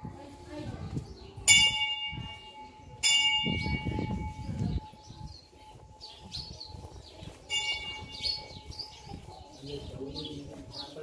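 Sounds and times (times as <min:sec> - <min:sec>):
metal bell ringing: 0:01.5 - 0:05.1, 0:07.5 - 0:08.9.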